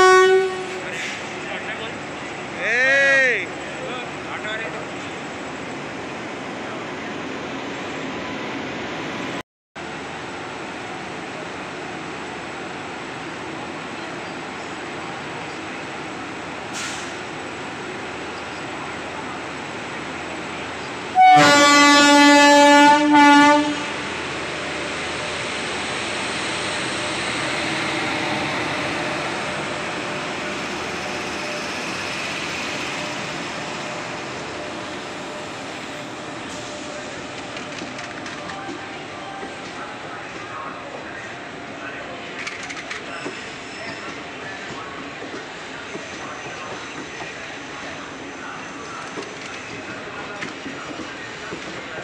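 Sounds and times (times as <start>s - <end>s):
locomotive air horn blasts: 0.0s - 1.0s, 21.1s - 24.1s
train rolling past: 0.0s - 52.0s.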